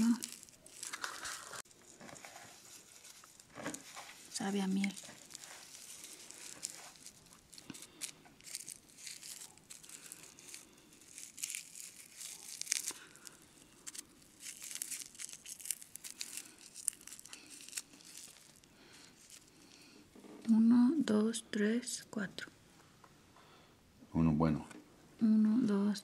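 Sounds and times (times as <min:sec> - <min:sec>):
rolling paper crinkling: 0:00.0 - 0:20.4.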